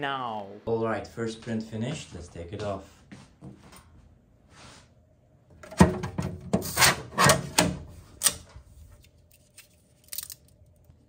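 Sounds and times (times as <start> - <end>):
plastic part scraping off sheet: 6.5 - 7.7.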